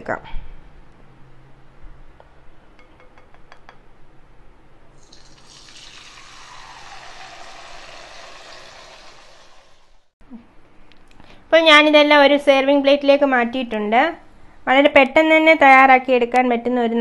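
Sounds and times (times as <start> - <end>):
oil sizzling: 5.0 - 10.2.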